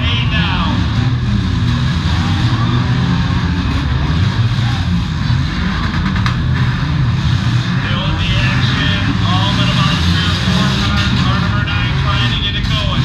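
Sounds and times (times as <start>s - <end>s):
car engines running hard: 0.0s - 13.0s.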